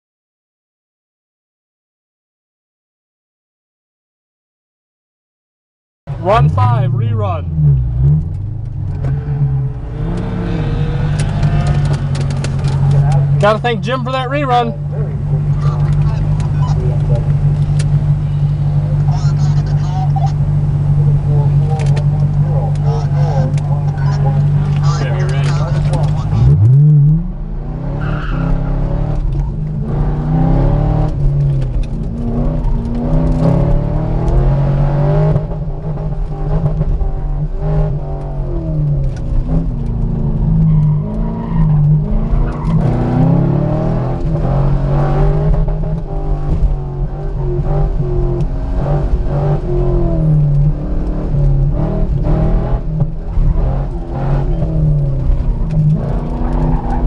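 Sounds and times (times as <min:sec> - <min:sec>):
car engine revving hard: 0:06.3 - 0:19.8, 0:20.4 - 0:57.0.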